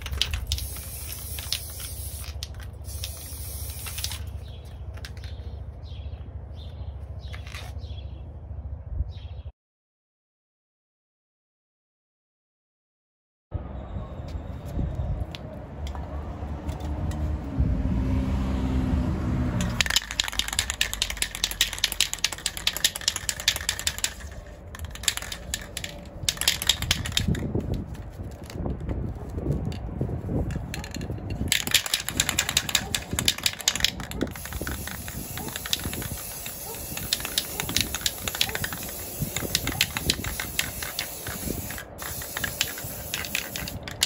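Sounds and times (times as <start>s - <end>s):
spray can ball rattling: 0.0s - 5.4s, 19.6s - 28.7s, 30.4s - 44.0s.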